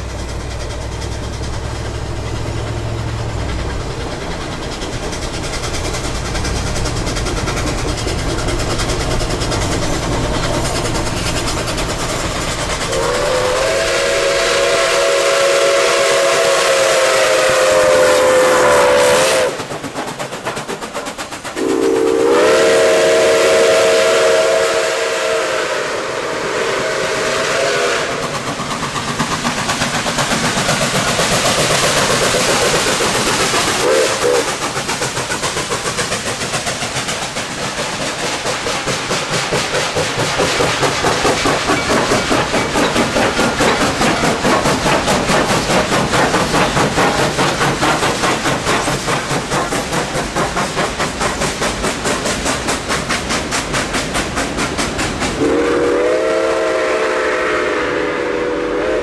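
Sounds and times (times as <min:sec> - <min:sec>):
steam hiss: 0:00.0 - 0:59.0
train running past rhythmic beat: 0:00.0 - 0:59.0
steam whistle blast: 0:12.9 - 0:19.6, 0:21.6 - 0:28.3, 0:33.8 - 0:34.5, 0:55.4 - 0:59.0.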